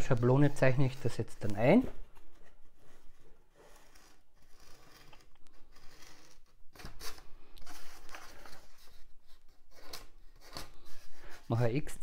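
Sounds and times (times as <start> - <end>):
pen scratching on foam board: 2.8 - 6.6.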